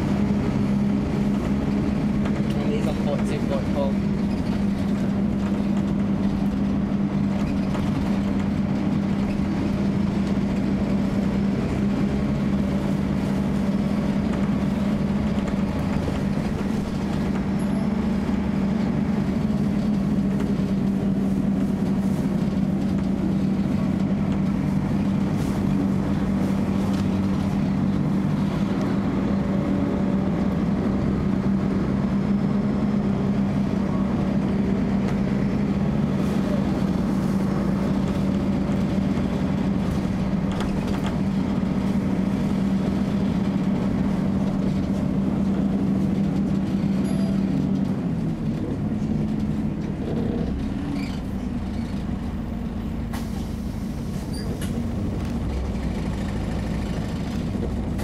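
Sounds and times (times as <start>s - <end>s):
engine and road noise: 0.0s - 58.0s.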